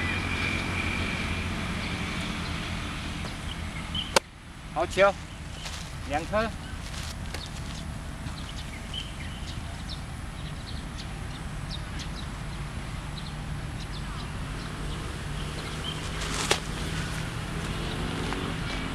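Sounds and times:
bird chirps: 0:00.0 - 0:04.2, 0:05.0 - 0:18.9
baseball smacking into glove: 0:16.2 - 0:17.0.

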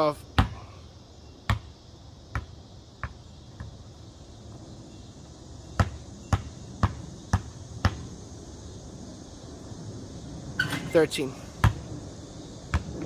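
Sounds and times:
basketball bouncing on concrete: 0:00.4 - 0:00.6, 0:01.5 - 0:03.8, 0:05.7 - 0:08.1, 0:11.6 - 0:11.9, 0:12.7 - 0:13.0.

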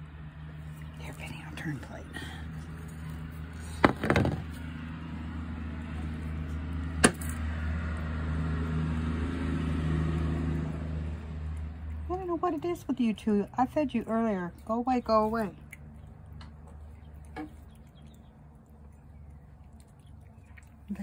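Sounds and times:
vehicle engine humming: 0:00.0 - 0:21.0
sharp knocks: 0:03.8 - 0:04.5.

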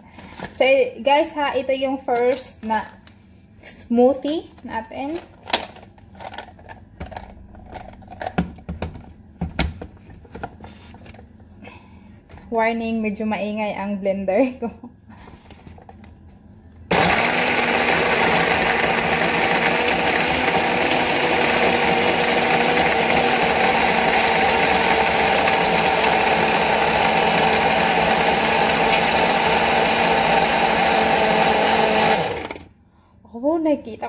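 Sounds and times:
electric blender running: 0:16.9 - 0:32.7.

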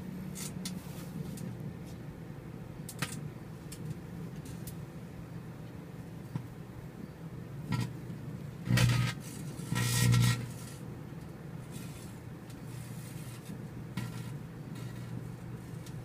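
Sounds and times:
microwave oven humming: 0:01.2 - 0:16.0
electrical arcing buzz: 0:07.6 - 0:10.9, 0:11.6 - 0:16.0.

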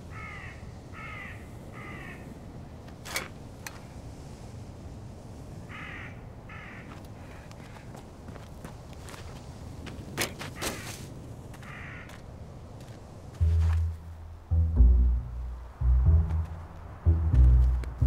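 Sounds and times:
crow cawing: 0:00.1 - 0:02.3, 0:05.7 - 0:07.8, 0:11.6 - 0:12.2
low steady rumble: 0:13.3 - 0:18.0.

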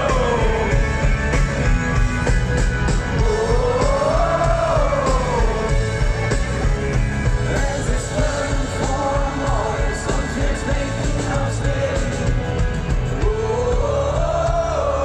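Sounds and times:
person singing: 0:00.0 - 0:01.0, 0:03.2 - 0:05.8, 0:13.2 - 0:15.0
live pop-rock band playing: 0:00.0 - 0:15.0.

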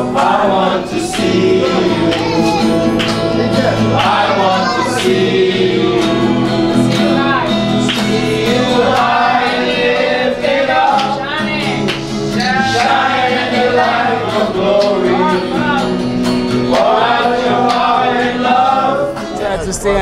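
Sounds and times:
group singing worship song: 0:00.0 - 0:19.4
acoustic guitar: 0:00.0 - 0:20.0.

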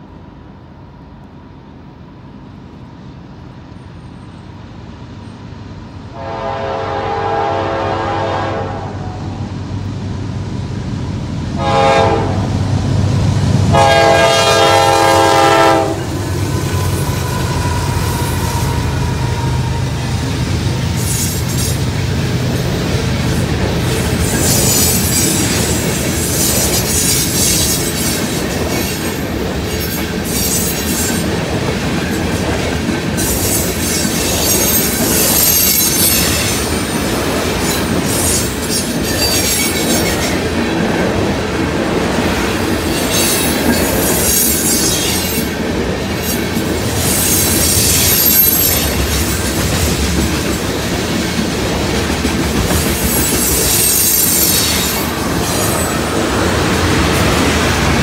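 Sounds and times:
train wheels rumbling on rail: 0:00.0 - 0:58.0
wheel squeal: 0:33.2 - 0:37.0, 0:37.8 - 0:40.4, 0:47.0 - 0:49.4, 0:52.9 - 0:55.9.

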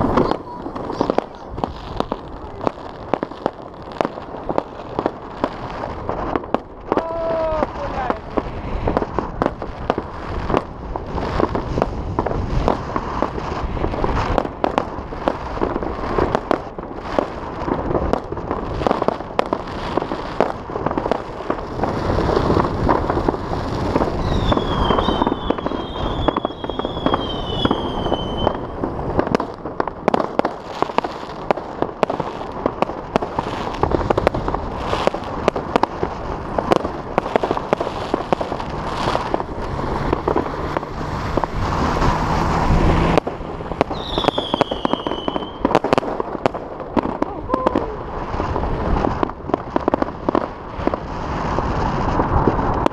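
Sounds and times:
fireworks bangs and crackles: 0:00.0 - 0:52.9
high wavering whistle: 0:43.9 - 0:45.6.

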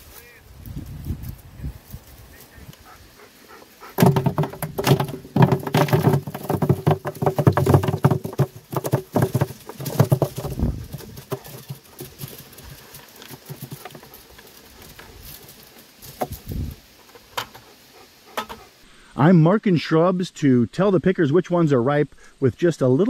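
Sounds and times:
nuts rattling into plastic barrel: 0:04.0 - 0:15.5.

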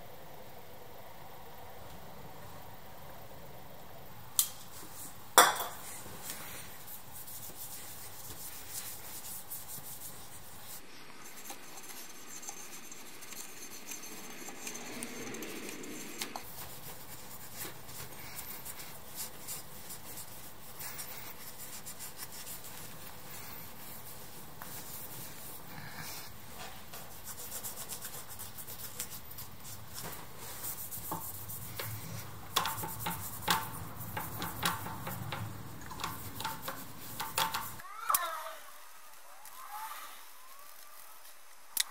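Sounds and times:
cloth rubbing on metal: 0:05.8 - 0:37.8.

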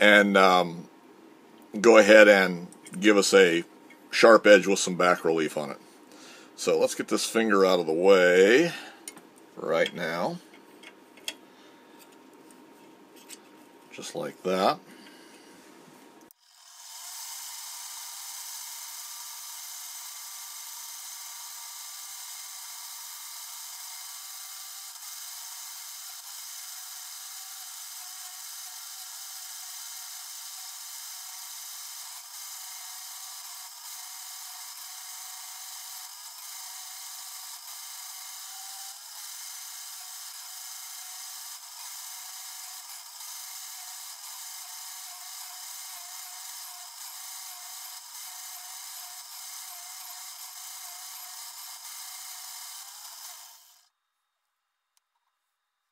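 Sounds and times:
grinding wheel high whine: 0:22.0 - 0:53.9.

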